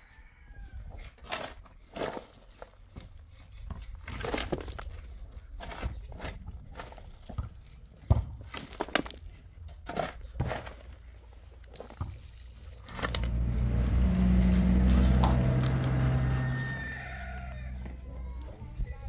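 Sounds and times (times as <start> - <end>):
shovel scraping earth and stones: 0.9 - 7.2, 8.4 - 17.3
vehicle engine hum: 12.6 - 18.8.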